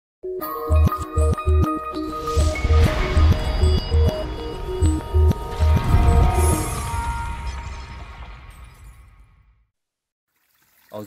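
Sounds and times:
deep repeating bass beat: 0:00.7 - 0:06.6.

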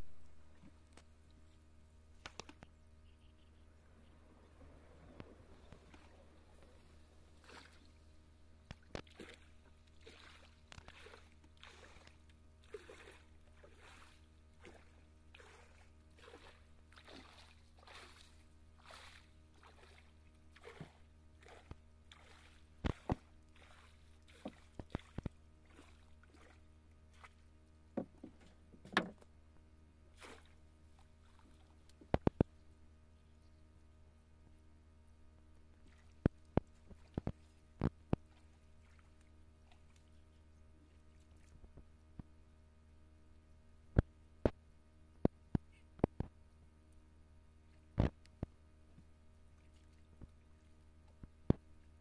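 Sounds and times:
water sloshing: 0:03.7 - 0:29.2.

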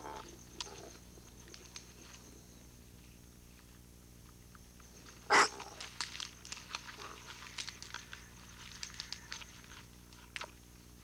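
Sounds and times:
animal gnawing and crunching: 0:03.5 - 0:11.0.

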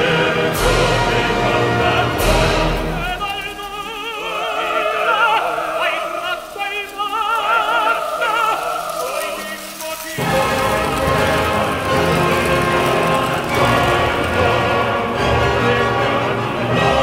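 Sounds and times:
operatic singing: 0:00.0 - 0:17.0.

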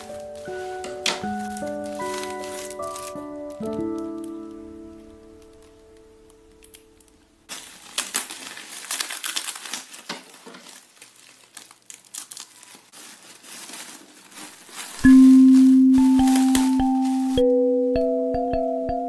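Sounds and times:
bubble wrap crinkling: 0:00.0 - 0:17.6
chiming music note: 0:15.0 - 0:19.0.

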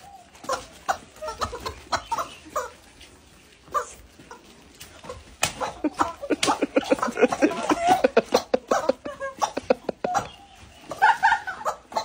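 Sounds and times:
rapid laughter: 0:05.6 - 0:12.0.

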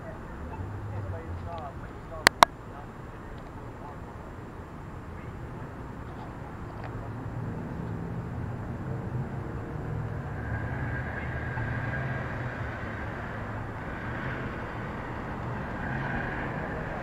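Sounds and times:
idling car engines and traffic: 0:00.0 - 0:17.0.

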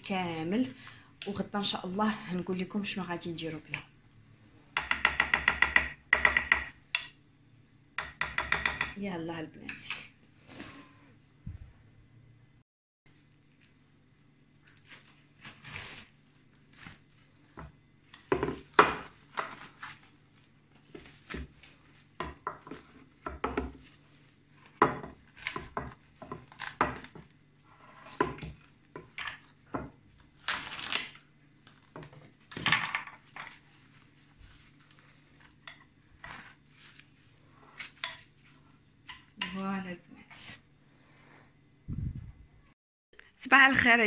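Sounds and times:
cling film crinkling and ripping: 0:13.5 - 0:17.3, 0:19.0 - 0:22.2, 0:26.4 - 0:27.2, 0:30.1 - 0:32.0, 0:33.5 - 0:35.6.

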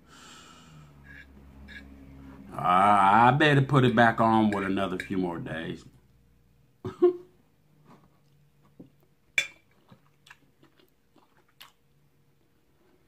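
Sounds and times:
person chewing food: 0:07.8 - 0:13.0.

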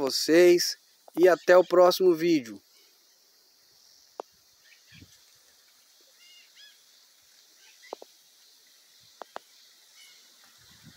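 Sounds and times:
high insect hiss: 0:00.0 - 0:10.9
short bird calls: 0:06.1 - 0:06.8, 0:09.3 - 0:10.3.

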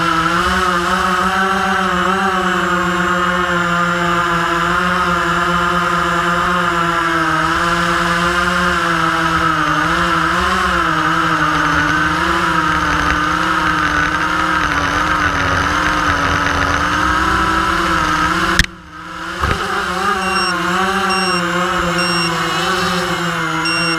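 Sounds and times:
drone motors whining: 0:08.2 - 0:23.9
short high beeps: 0:20.2 - 0:22.4, 0:23.6 - 0:23.9.

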